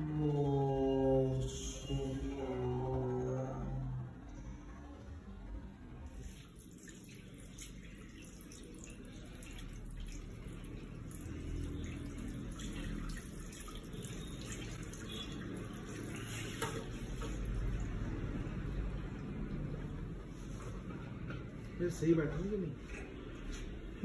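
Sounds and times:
water splashing into basin: 6.1 - 20.0.

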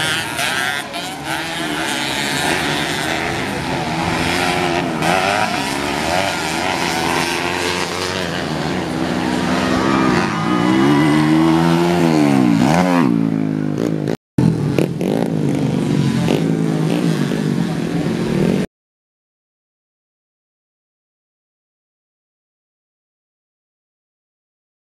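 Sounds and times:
dirt bike engines revving: 0.0 - 18.7.

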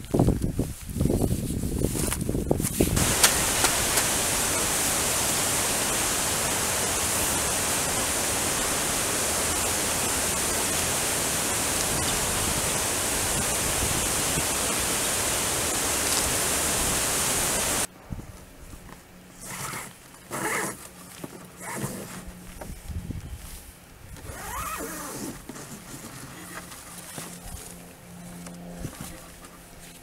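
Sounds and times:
water rushing over a dam: 3.0 - 17.9.

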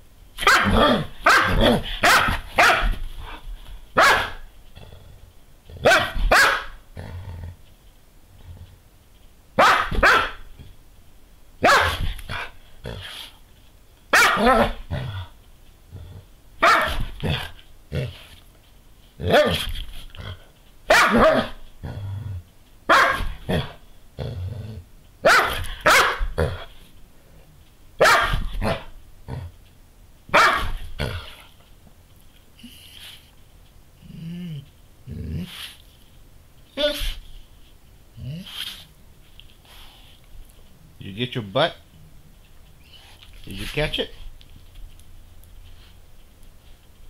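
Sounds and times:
dog giving growly barks: 0.4 - 3.4, 5.7 - 7.6, 11.6 - 13.3, 14.2 - 15.3, 15.9 - 18.3, 19.2 - 26.7, 30.3 - 31.4.

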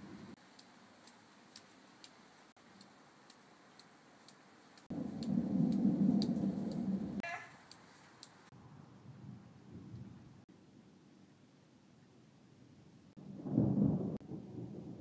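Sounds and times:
thunder rumbling: 0.0 - 0.4, 4.9 - 7.7, 8.4 - 10.5, 13.1 - 15.0
faint regular ticking: 0.3 - 6.9, 7.6 - 8.5.

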